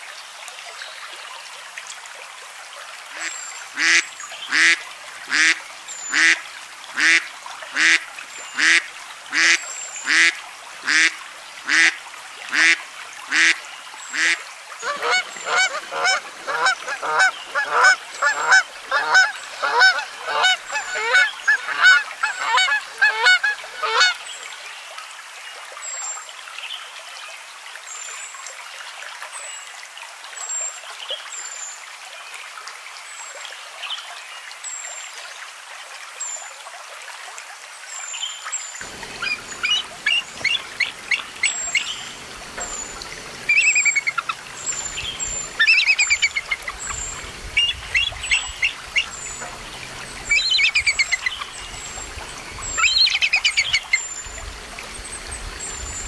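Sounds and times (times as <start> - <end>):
geese honking: 3.2 - 6.4, 7.0 - 7.2, 7.8 - 8.0, 8.6 - 10.3, 10.9 - 11.1, 11.7 - 13.6, 14.2 - 24.2, 38.8 - 51.7
faint steady hiss: 38.0 - 56.0
high bird chirps: 39.0 - 49.5, 50.2 - 51.9, 52.6 - 54.2.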